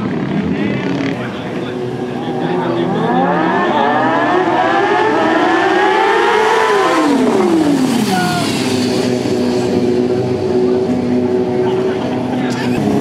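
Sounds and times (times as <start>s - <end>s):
motorcycle engine revving past: 0.0s - 13.0s.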